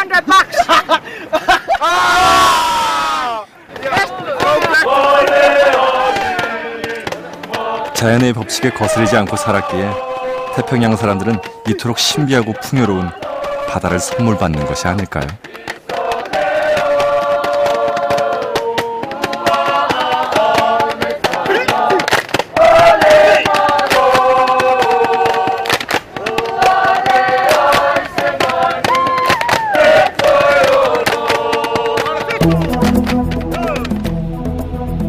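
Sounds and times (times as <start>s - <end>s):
choir singing held chords: 3.7s - 35.0s
sharp percussive hits: 15.3s - 35.0s.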